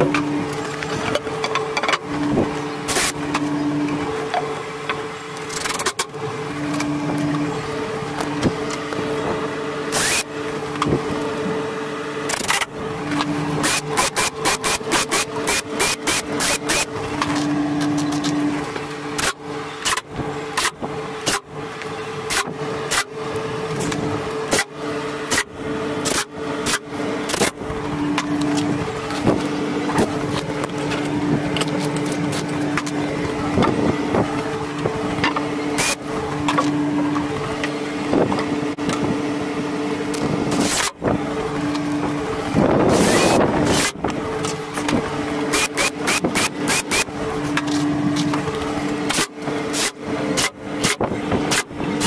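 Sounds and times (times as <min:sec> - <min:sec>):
steady low hum: 0:00.0 - 0:52.0
drill trigger pulsed whine: 0:09.8 - 0:10.6, 0:12.3 - 0:17.0, 0:45.4 - 0:47.6
cordless drill spinning: 0:09.9 - 0:10.3, 0:13.2 - 0:17.4, 0:42.8 - 0:47.2.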